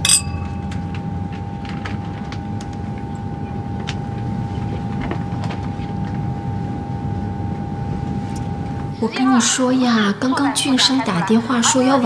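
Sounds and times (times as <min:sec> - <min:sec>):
champagne glasses clinking: 0:00.0 - 0:00.6
airliner cabin drone: 0:00.0 - 0:12.0
steady humming tone: 0:00.0 - 0:12.0.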